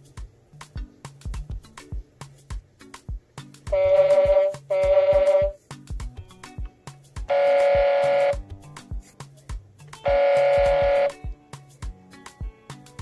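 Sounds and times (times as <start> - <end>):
looping drum beat: 0.0 - 13.0
toy car electronic horn honks: 3.8 - 5.6, 7.3 - 8.4, 10.1 - 11.2.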